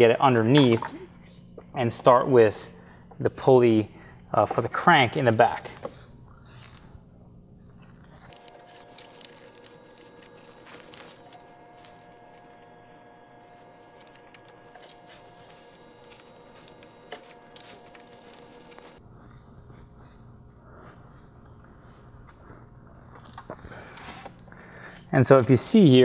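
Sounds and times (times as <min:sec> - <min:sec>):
faint steady hum: 0:00.0 - 0:26.0.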